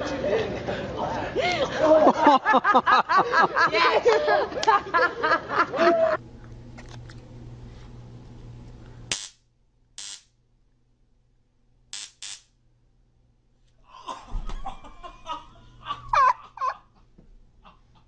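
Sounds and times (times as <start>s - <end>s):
stun gun crackling: 9.1s - 10.4s, 11.9s - 12.6s
thud: 14.2s - 14.8s.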